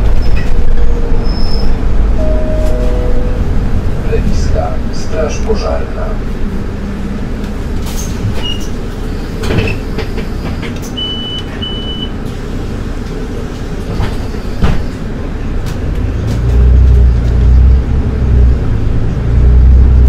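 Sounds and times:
bus engine rumble: 0:00.0 - 0:20.0
short high beeps: 0:02.2 - 0:03.5.

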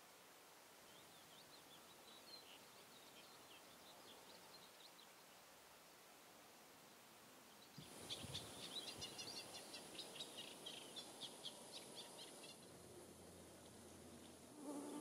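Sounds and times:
songbird chirping: 0:00.7 - 0:05.6, 0:06.8 - 0:15.0
high-pitched hiss: 0:07.7 - 0:15.0.

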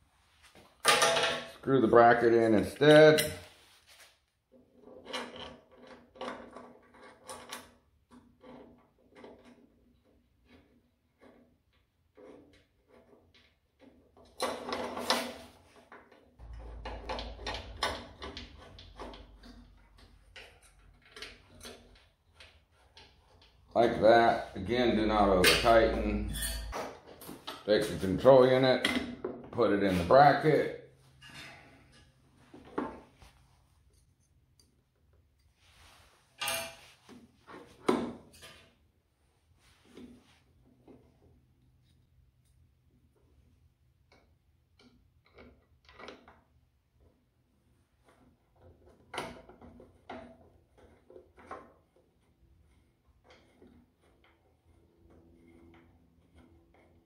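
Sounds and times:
low hum: 0:16.4 - 0:22.1
metal scraping: 0:16.4 - 0:28.8, 0:29.6 - 0:34.4.

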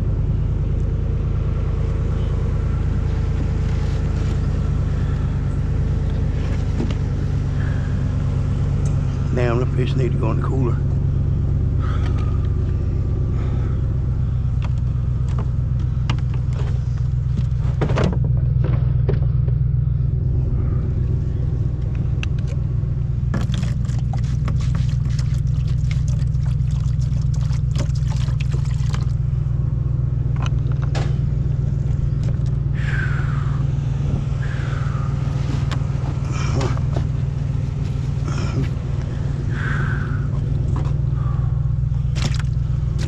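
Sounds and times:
vehicle engine idling: 0:00.0 - 0:43.0
cooler and bottle handling: 0:42.1 - 0:43.0.

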